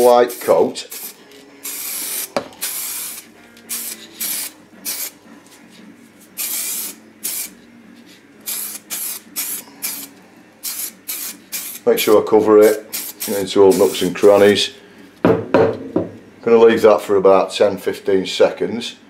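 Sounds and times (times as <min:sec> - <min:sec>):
aerosol can spraying: 0:00.0 - 0:05.2, 0:06.4 - 0:07.6, 0:08.4 - 0:14.5.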